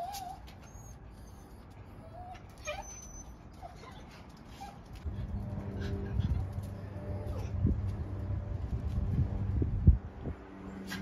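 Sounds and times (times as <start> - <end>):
dog whimpering: 0.0 - 4.8.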